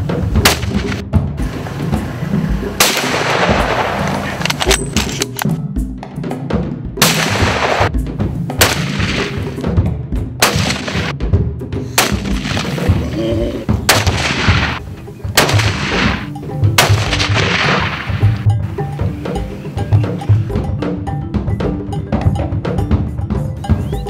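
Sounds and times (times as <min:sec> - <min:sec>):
background music: 0:00.0 - 0:24.0
rifle shots: 0:00.4 - 0:01.0, 0:02.8 - 0:05.4, 0:07.0 - 0:07.9, 0:08.6 - 0:09.5, 0:10.4 - 0:11.1, 0:12.0 - 0:13.0, 0:13.9 - 0:14.8, 0:15.4 - 0:18.4.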